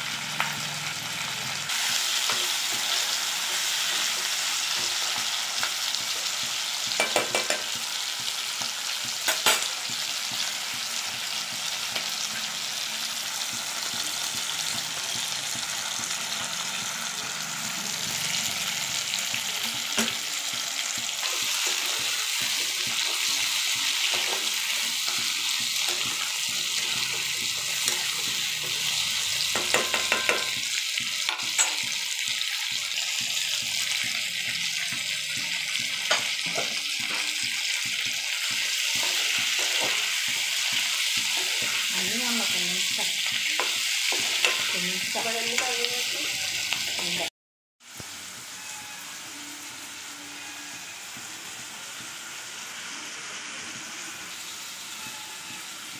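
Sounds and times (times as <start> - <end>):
food sizzling in hot oil: 0.0 - 55.9
spatula scraping a pan: 19.7 - 46.1.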